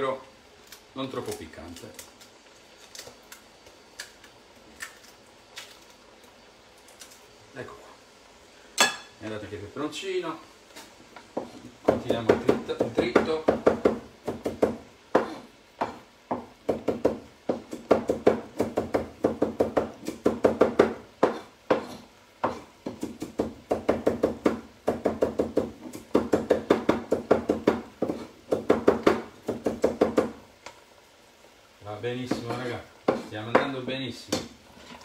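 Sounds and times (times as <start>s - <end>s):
knife chopping on cutting board: 11.4s - 30.4s, 32.3s - 33.7s.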